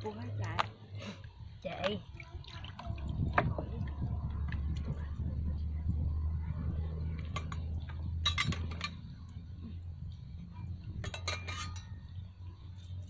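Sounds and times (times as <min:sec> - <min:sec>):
steady low hum: 0:02.9 - 0:13.0
metallic clinks and jingles: 0:07.1 - 0:13.0.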